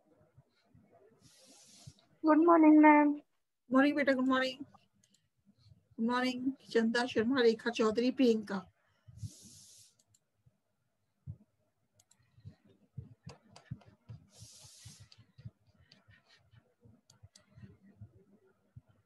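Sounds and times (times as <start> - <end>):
short soft hisses: 1.2 - 2.1, 9.2 - 10.1, 14.3 - 15.2
faint clicks: 12.0 - 14.3.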